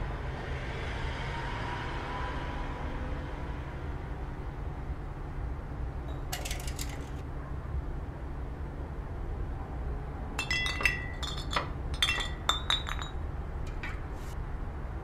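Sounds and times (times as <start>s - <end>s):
light glassy clinks: 10.4s - 14.0s.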